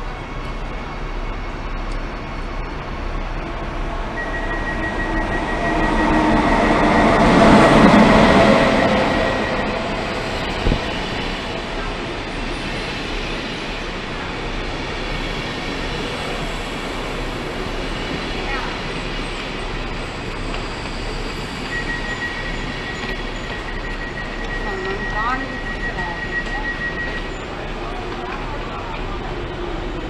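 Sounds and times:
electric locomotive passing: 0.0s - 30.0s
train coaches rolling past: 0.0s - 30.0s
thin high whine: 3.6s - 11.4s.

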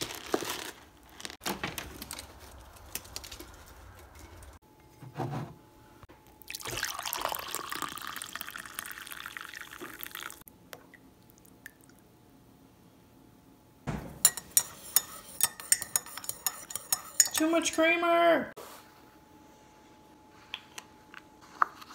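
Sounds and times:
coffee pouring into mug: 6.5s - 10.4s.

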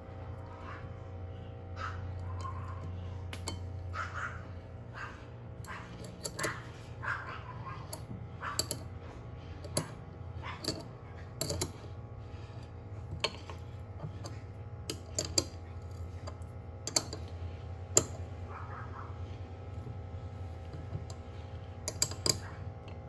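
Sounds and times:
steady low hum: 0.0s - 23.0s
ratcheting wrench clicking: 21.9s - 22.5s.

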